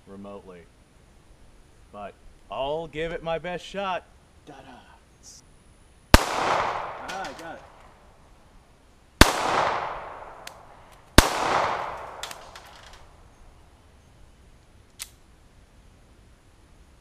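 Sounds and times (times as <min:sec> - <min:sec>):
pistol shots with echo: 0:06.2 - 0:07.8, 0:09.2 - 0:12.7.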